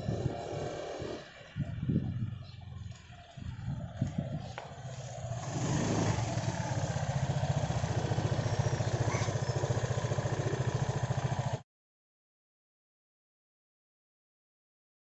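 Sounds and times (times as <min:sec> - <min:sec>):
scooter engine idling: 0:00.0 - 0:11.6.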